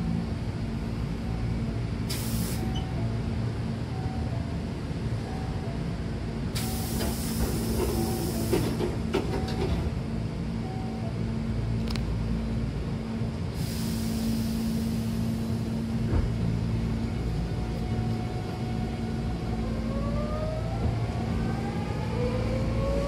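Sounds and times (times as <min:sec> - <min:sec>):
train low hum: 0:00.0 - 0:23.0
train door air hiss: 0:02.1 - 0:02.8, 0:06.5 - 0:09.0, 0:13.5 - 0:16.3
train doors clunking shut: 0:06.6 - 0:10.0, 0:15.9 - 0:16.6.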